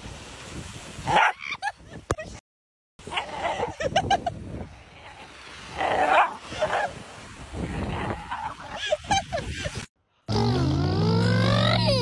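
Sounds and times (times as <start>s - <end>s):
wind: 0.0s - 2.4s, 3.0s - 12.0s
dog yipping and barking: 1.1s - 1.6s, 6.1s - 6.9s.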